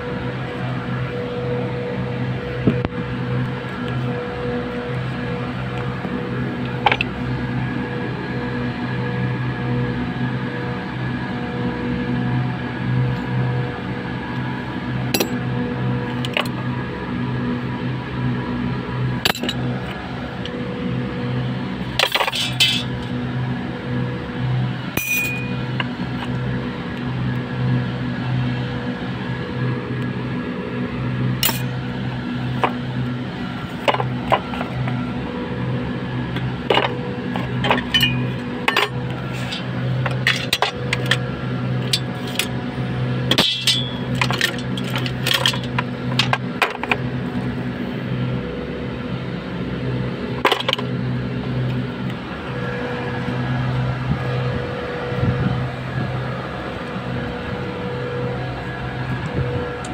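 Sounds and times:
low machine hum: 0:00.0 - 0:59.9
steel parts clinking: 0:15.2 - 0:15.4, 0:19.3 - 0:19.6, 0:22.0 - 0:23.0, 0:25.0 - 0:25.6, 0:31.4 - 0:31.7, 0:36.7 - 0:41.2, 0:41.8 - 0:42.6, 0:43.3 - 0:47.0.

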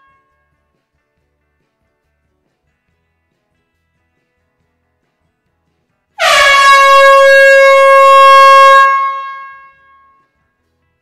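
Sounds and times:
air horn blast in hall: 0:06.2 - 0:10.0.

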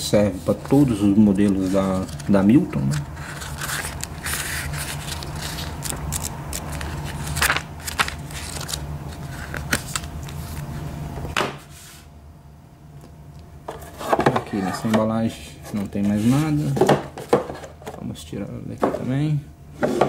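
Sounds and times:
steady low hum: 0:00.0 - 0:20.0
paper pages rustling and turning: 0:00.4 - 0:10.9.

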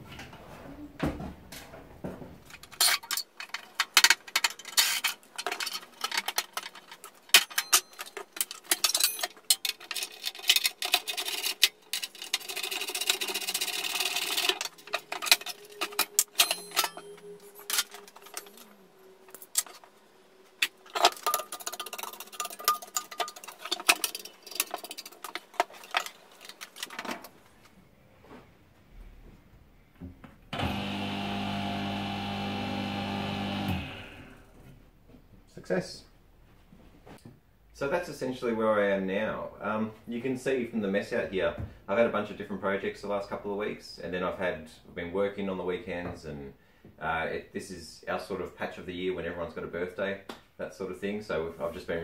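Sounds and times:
clattering of hand tools and metal: 0:00.0 - 0:27.8.

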